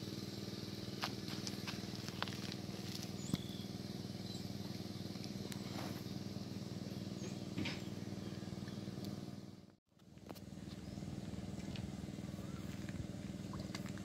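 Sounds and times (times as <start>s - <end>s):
motor droning: 0.0s - 14.0s
faint bird chirps: 3.1s - 9.0s, 12.3s - 12.8s.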